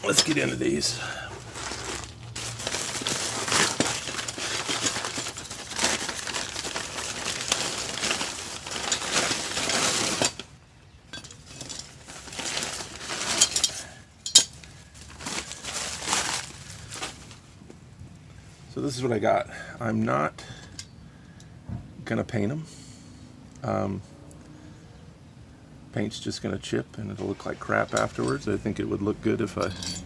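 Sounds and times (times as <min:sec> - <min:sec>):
metal hooks clinking: 0:00.0 - 0:00.8, 0:13.2 - 0:14.7, 0:27.9 - 0:28.6, 0:29.5 - 0:30.0
plastic bag crinkling: 0:00.0 - 0:10.6, 0:11.4 - 0:17.6.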